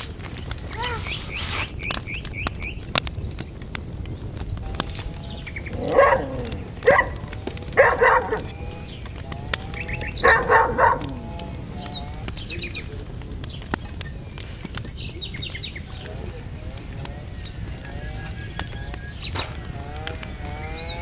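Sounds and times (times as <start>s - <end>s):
dog barking: 5.8s - 8.5s, 10.2s - 11.3s.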